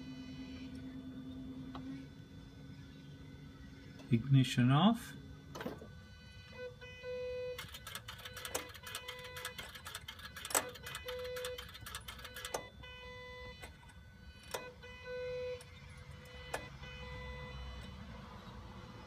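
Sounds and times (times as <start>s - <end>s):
actuator humming tone: 0.0s - 19.0s
scattered clicks: 7.6s - 12.7s.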